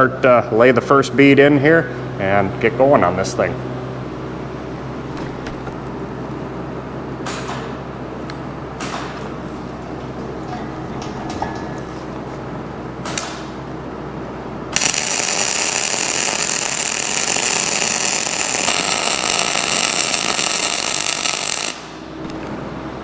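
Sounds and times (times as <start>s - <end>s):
welding arc crackling and hissing: 14.7s - 22.0s.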